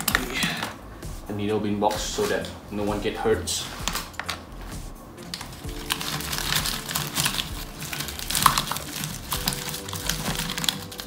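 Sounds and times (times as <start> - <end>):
paper and plastic crumpling: 3.5 - 11.0.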